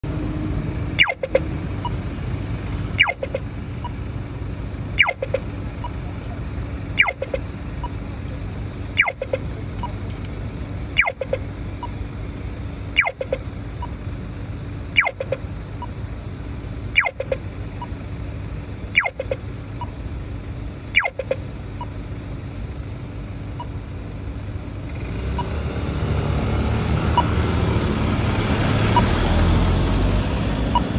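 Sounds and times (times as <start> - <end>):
road traffic: 0.0 - 30.9
crossing signal chirps: 1.0 - 2.0, 3.0 - 4.0, 5.0 - 6.0, 7.0 - 8.0, 9.0 - 10.0, 11.0 - 12.0, 12.9 - 14.0, 15.0 - 16.0, 16.6 - 18.0, 18.9 - 20.0, 21.0 - 22.0
vehicle passing: 24.9 - 30.9.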